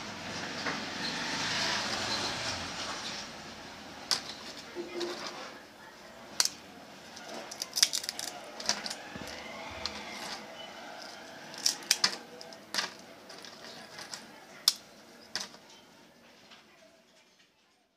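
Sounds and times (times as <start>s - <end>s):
plastic packet crinkling: 7.2s - 14.7s
potato chips crunching: 7.2s - 14.7s.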